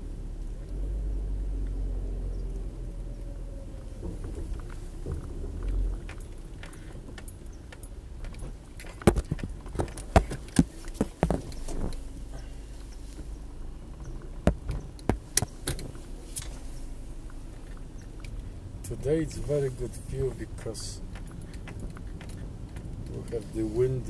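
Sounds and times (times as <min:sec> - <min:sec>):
car engine and road hum: 0:00.0 - 0:24.0
sharp irregular clicks and knocks: 0:04.0 - 0:12.5, 0:14.0 - 0:16.6, 0:20.3 - 0:23.5.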